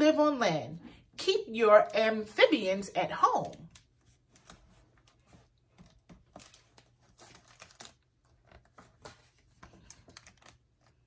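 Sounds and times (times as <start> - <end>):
paper rustling: 3.4 - 11.0.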